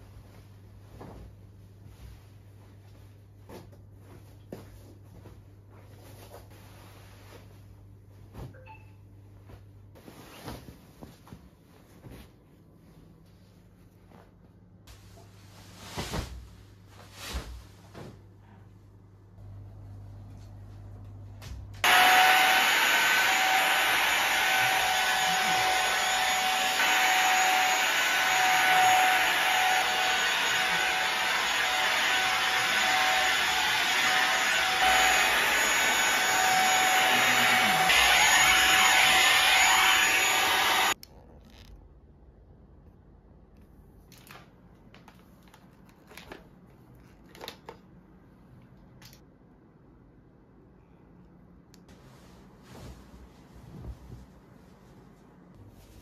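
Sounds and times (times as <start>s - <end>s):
vacuum cleaner motor whine: 21.8s - 41.0s.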